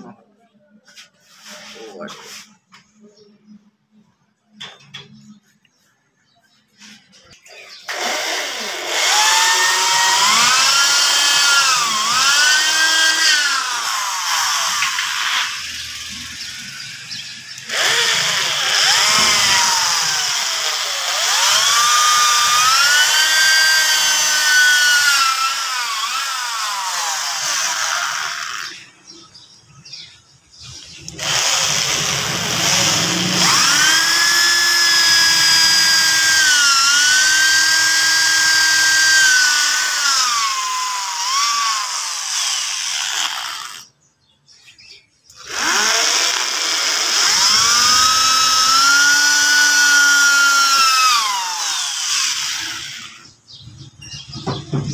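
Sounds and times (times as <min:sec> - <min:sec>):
electric drill boring into wood: 0:07.5 - 0:28.9, 0:31.0 - 0:43.9, 0:45.3 - 0:53.4.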